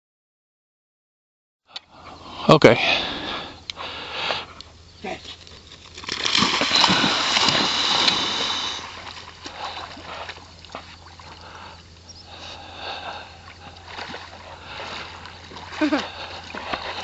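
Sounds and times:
dog swimming in water: 0:03.1 - 0:17.0
dog splashing through water: 0:05.6 - 0:11.8, 0:13.0 - 0:17.0.

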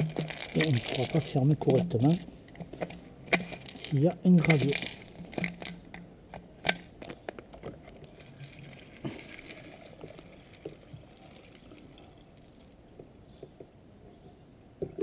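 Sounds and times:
water trickling into tank: 0:08.0 - 0:13.6.

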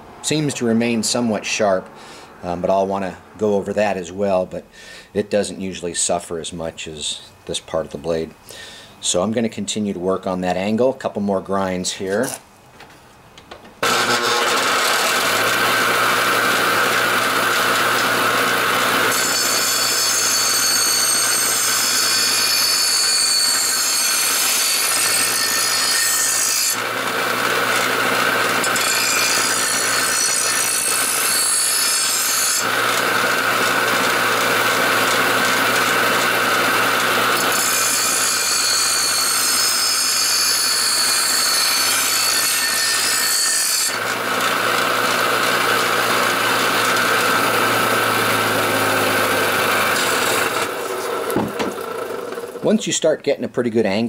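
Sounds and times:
grinder motor hum: 0:13.8 - 0:24.4, 0:26.7 - 0:31.3, 0:32.0 - 0:38.2, 0:43.9 - 0:52.7
blade grinding on wheel: 0:13.8 - 0:52.6.

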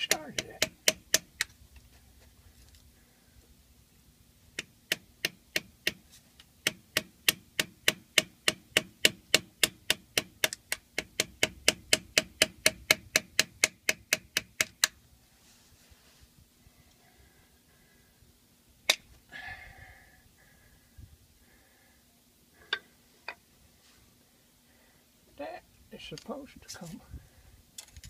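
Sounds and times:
hammer tapping on steel tool: 0:00.0 - 0:01.3.

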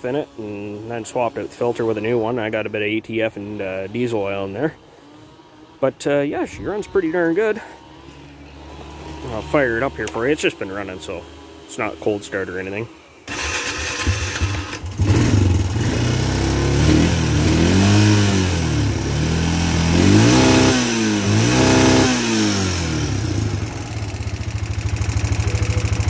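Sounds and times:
electric starter cranking: 0:07.2 - 0:26.0
engine revving and idling: 0:07.4 - 0:26.0.

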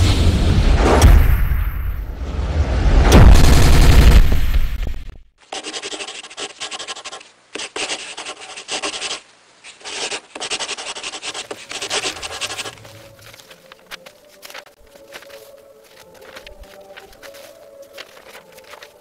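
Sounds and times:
pencil scratching on paper: 0:05.5 - 0:12.9.

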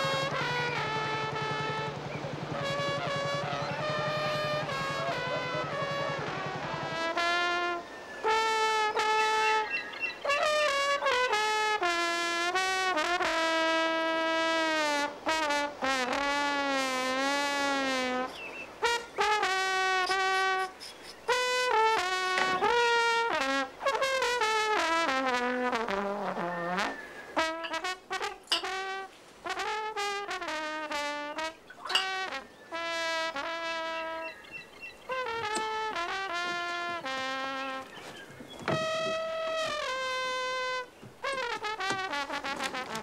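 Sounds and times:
solo trombone playing: 0:00.0 - 0:43.0.

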